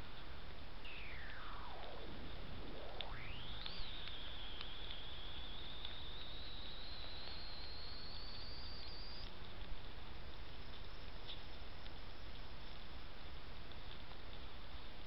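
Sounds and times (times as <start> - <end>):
faint clicks: 0.0 - 15.0
steady hiss: 0.0 - 15.0
high-pitched electronic whine: 0.8 - 9.3.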